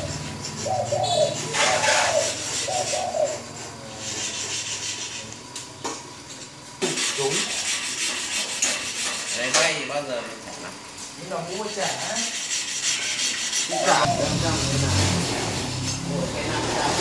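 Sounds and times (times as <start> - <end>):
hand tool scraping shell: 0.0 - 5.4, 6.8 - 9.8, 11.7 - 14.0.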